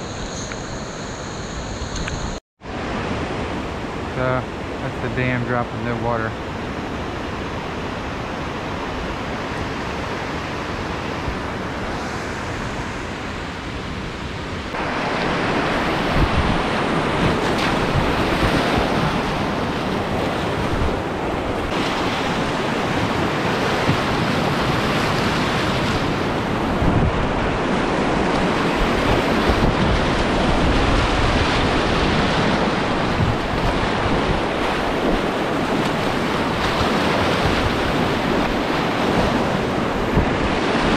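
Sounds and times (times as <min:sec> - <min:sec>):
wind buffeting microphone: 0:06.6 - 0:40.9.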